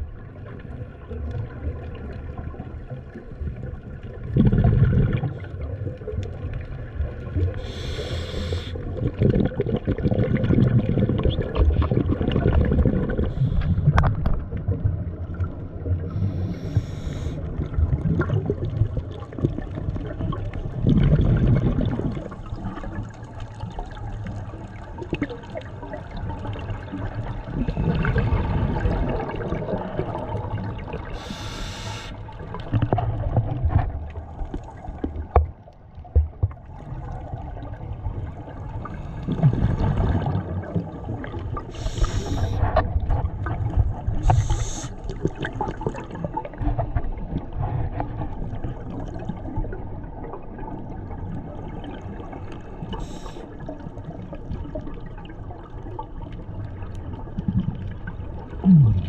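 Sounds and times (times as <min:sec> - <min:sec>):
water sloshing and gurgling: 0:00.0 - 0:59.0
short hissing bursts: 0:07.6 - 0:08.8, 0:16.2 - 0:17.4, 0:31.2 - 0:32.2, 0:41.7 - 0:42.6, 0:44.2 - 0:45.0.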